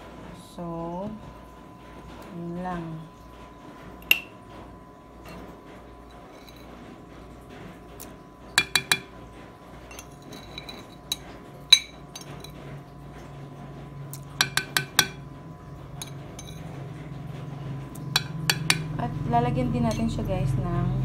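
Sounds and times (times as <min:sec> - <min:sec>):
utensil tapping mixing bowl: 0:04.0 - 0:04.4, 0:08.5 - 0:09.2, 0:14.2 - 0:15.3, 0:17.9 - 0:19.0.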